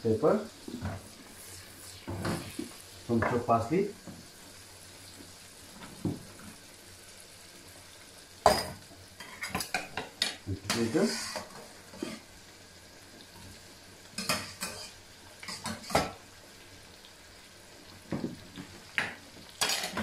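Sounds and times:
metal utensil clinking on pots: 19.6s - 20.0s.

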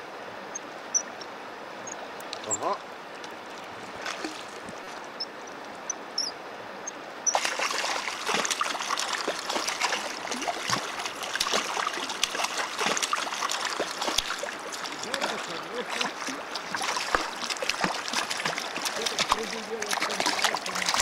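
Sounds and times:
river running: 0.0s - 21.0s
fish thrashing and splashing: 3.8s - 4.8s, 7.3s - 21.0s.

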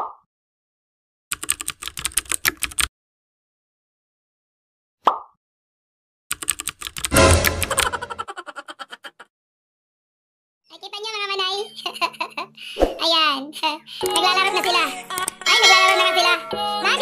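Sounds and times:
keyboard typing clicks: 1.3s - 2.9s, 6.3s - 8.1s, 14.0s - 14.3s, 15.1s - 15.4s
short sharp sound: 7.1s - 7.9s.

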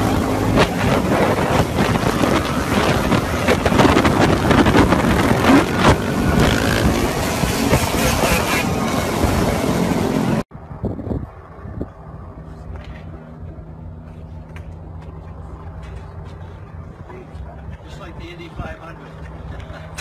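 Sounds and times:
wind buffeting microphone: 0.0s - 13.5s
dirt bike engines: 0.0s - 20.0s.

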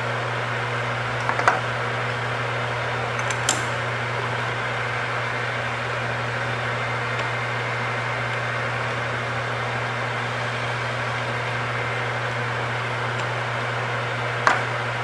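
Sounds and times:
metal lathe running: 0.0s - 15.0s.

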